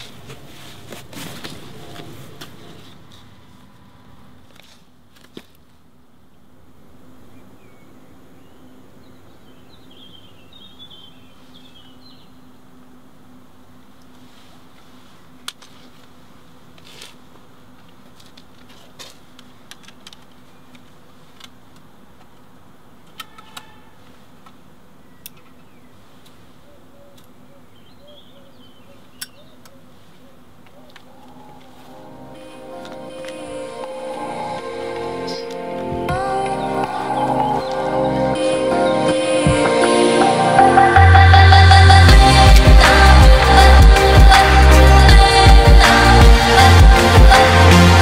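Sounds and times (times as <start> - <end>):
low hum: 30.9 - 48.0.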